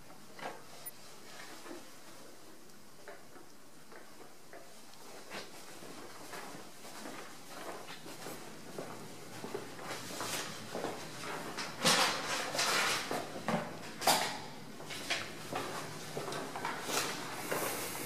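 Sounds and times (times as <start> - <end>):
footsteps: 15.5 - 18.0.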